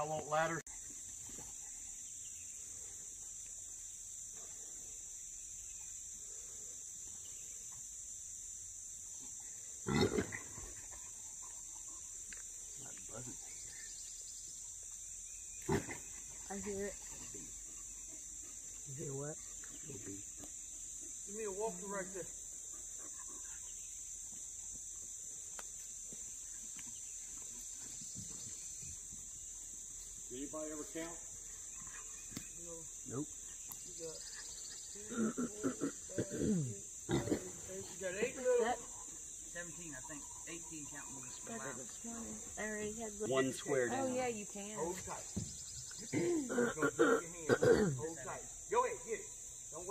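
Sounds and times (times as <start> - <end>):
insects buzzing: 0.0 - 49.9
hog grunting: 9.8 - 10.7, 35.0 - 37.7, 46.1 - 48.0.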